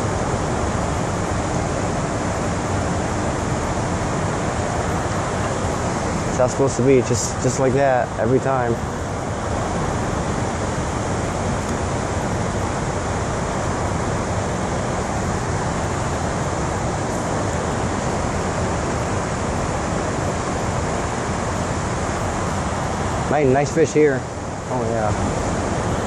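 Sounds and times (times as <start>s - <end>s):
river rushing over rapids: 8.8s - 26.0s.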